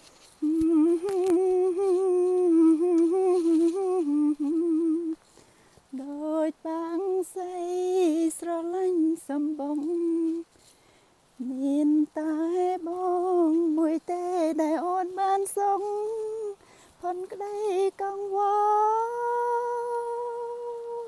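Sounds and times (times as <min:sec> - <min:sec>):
woman humming: 0:00.4 - 0:05.2.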